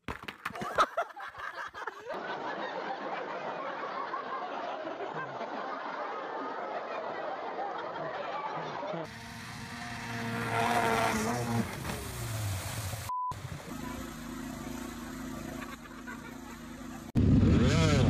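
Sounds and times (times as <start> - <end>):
small petrol engine running: 9.1 - 18.0
vehicle engine revving: 9.1 - 18.0.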